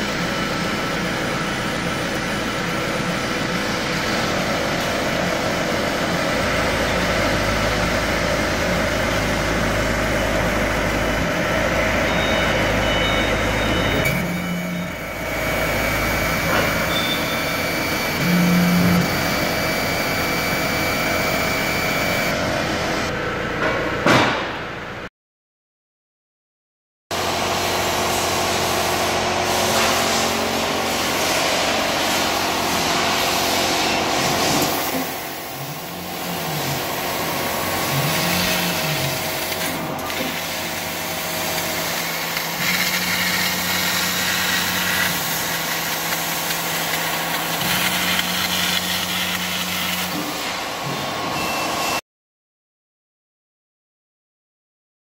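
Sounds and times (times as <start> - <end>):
laser cutter hiss and hum: 2.0 - 23.1, 27.6 - 51.9
motor tones changing pitch: 2.0 - 23.2, 34.3 - 52.0.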